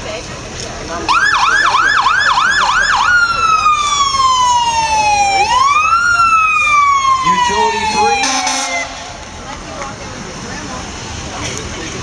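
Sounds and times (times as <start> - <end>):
fire engine siren: 1.1 - 9.4.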